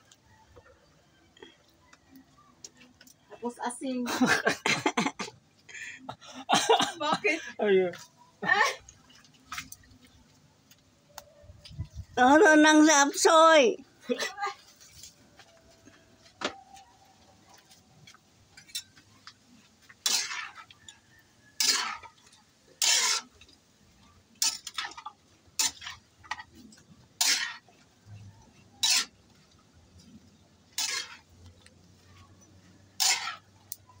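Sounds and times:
metal spatula scraping a wok: 19.6s - 33.8s.

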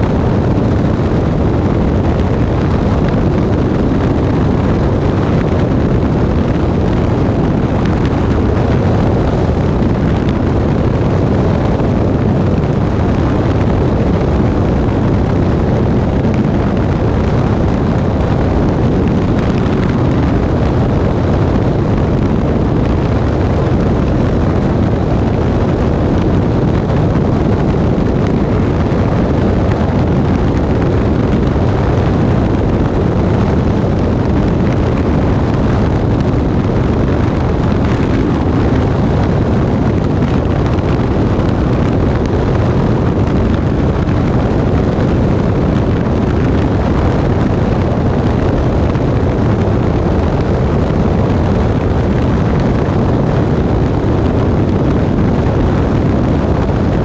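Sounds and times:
light aircraft engine and airflow: 0.0s - 57.0s
wind buffeting microphone: 0.0s - 57.0s.

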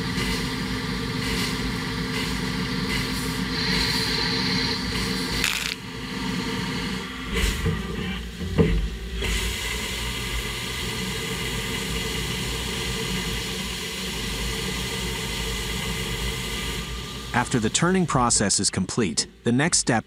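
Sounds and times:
lathe running whine: 0.0s - 19.6s
coolant spraying hiss: 9.2s - 18.6s.

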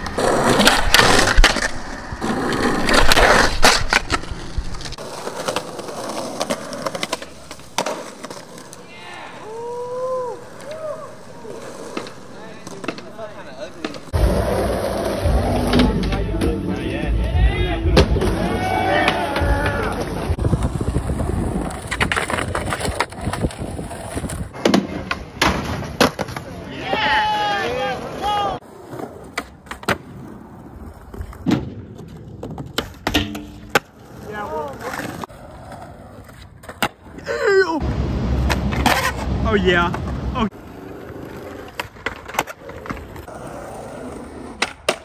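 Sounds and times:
skateboard clacks and pops: 0.0s - 8.8s, 11.8s - 14.3s, 19.0s - 27.1s, 30.8s - 34.0s, 41.1s - 43.4s, 44.4s - 45.0s
skateboard rolling on concrete: 0.0s - 45.0s
wind on microphone: 20.3s - 24.6s
skateboard landing smack: 24.6s - 26.5s, 31.3s - 33.9s.

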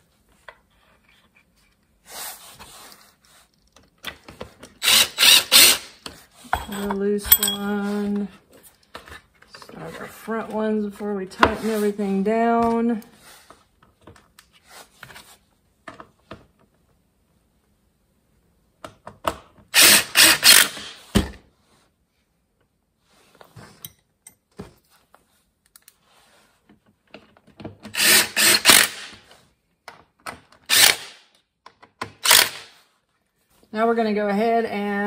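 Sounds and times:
impact driver running screws: 4.8s - 6.0s, 19.7s - 21.1s, 27.9s - 29.2s, 30.6s - 31.3s, 32.0s - 32.8s.

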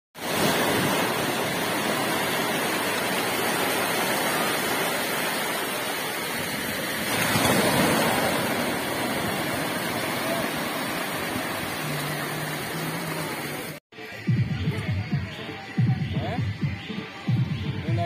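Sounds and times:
sea waves breaking on shore: 0.2s - 13.8s.

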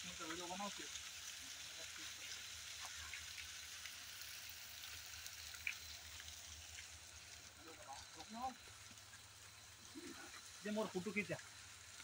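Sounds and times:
light rain hiss: 0.0s - 12.0s
small drop-like ticks: 5.4s - 7.0s.

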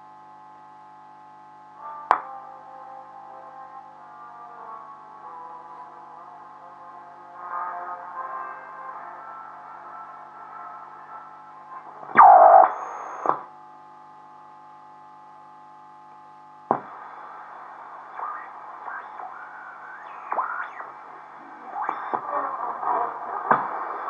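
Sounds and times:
muffled broadcast sound: 11.8s - 13.5s, 16.7s - 24.0s
radio hum: 12.0s - 13.5s, 16.7s - 24.0s
radio whistle gliding down: 12.1s - 13.4s, 18.2s - 22.3s.

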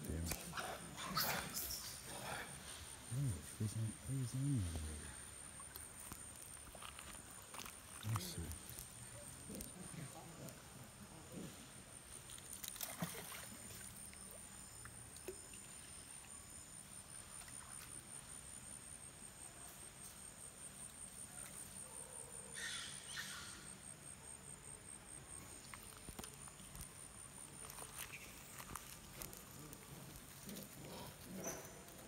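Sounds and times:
insects trilling: 0.0s - 32.0s.

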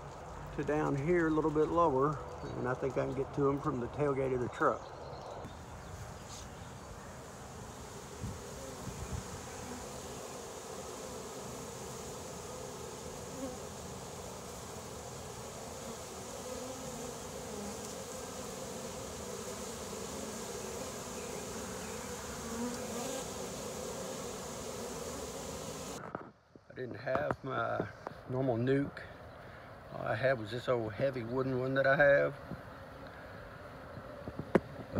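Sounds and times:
bees buzzing: 0.8s - 26.0s.

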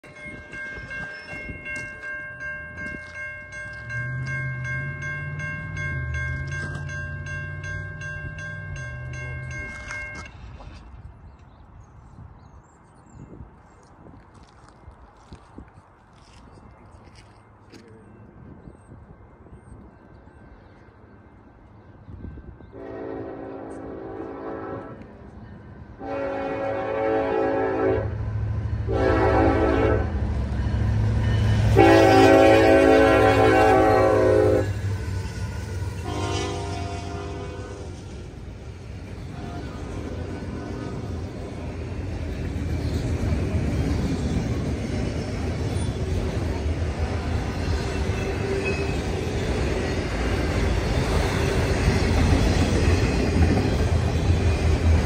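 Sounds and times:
railroad crossing bell ringing: 0.0s - 10.7s, 16.6s - 28.0s, 28.9s - 55.0s
diesel locomotive rumble: 17.8s - 55.0s
locomotive air horn blast: 22.7s - 25.0s, 26.0s - 28.2s, 28.9s - 30.2s, 31.7s - 34.8s, 36.0s - 38.0s, 39.3s - 41.2s.

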